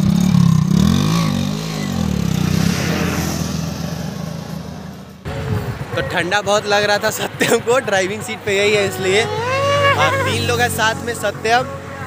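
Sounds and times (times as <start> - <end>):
motorcycle engine idling: 0.0 - 2.6
motorcycle engine revving: 0.0 - 5.9.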